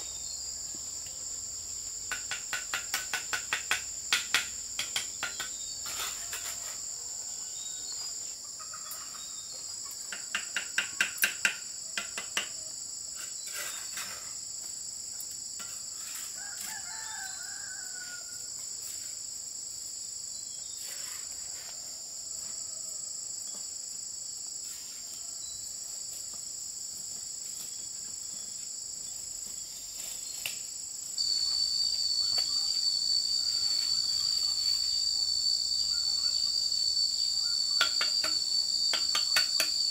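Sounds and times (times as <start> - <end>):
high insect tone: 0.0 - 39.9
insects chorus: 0.0 - 39.9
rooster crowing: 16.3 - 18.5, 32.0 - 34.4
trowel tapping on brick: 37.8 - 39.8.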